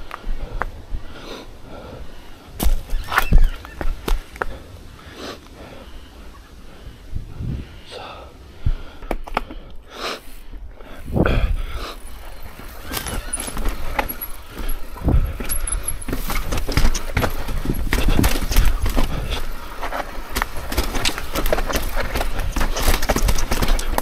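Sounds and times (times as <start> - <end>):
bike tyres rolling on dirt: 0.0 - 24.0
low wind rumble: 0.0 - 24.0
bike rattling over bumps: 2.6 - 4.6, 10.9 - 24.0.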